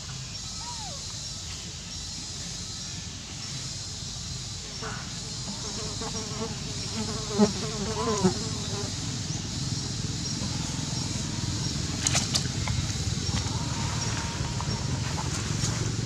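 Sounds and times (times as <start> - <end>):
steady background hiss: 0.0 - 16.0
flying insect buzzing: 5.4 - 9.2.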